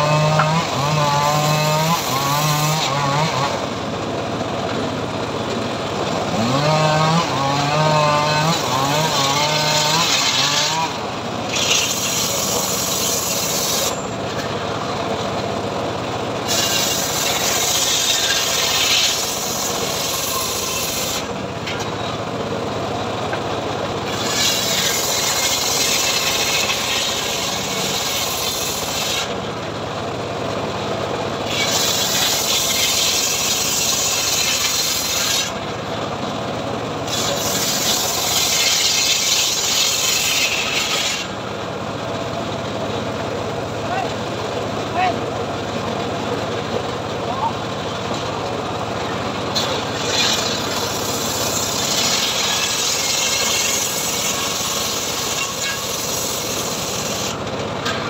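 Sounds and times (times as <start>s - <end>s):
circular saw cutting wood: 0.0s - 3.8s, 6.2s - 14.2s, 16.4s - 21.4s, 24.0s - 29.4s, 31.4s - 35.7s, 37.0s - 41.4s, 49.3s - 58.0s
saw motor droning: 0.0s - 3.9s, 5.8s - 14.2s, 16.3s - 21.5s, 24.0s - 29.4s, 31.4s - 35.9s, 37.0s - 41.5s, 48.4s - 57.5s.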